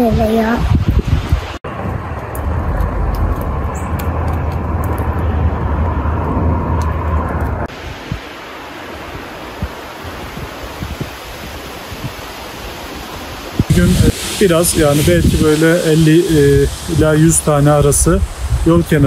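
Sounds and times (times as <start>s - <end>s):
steady rush of air: 0.0s - 19.0s
wind buffeting microphone: 0.0s - 19.0s.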